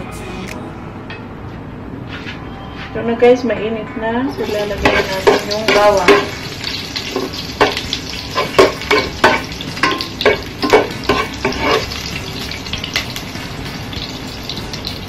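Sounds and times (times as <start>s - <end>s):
garlic sizzling in hot oil: 4.4s - 15.0s
metal spoon scraping a pot: 10.7s - 12.0s.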